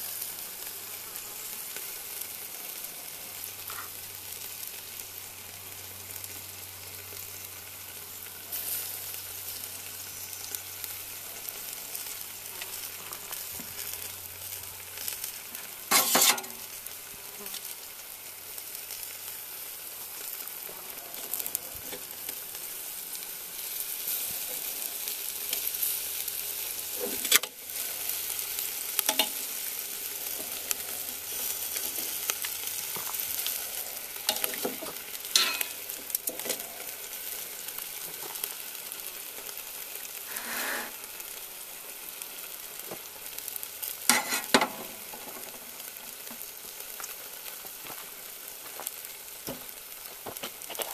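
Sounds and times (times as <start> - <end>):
ribs sizzling on grill: 0.0 - 50.9.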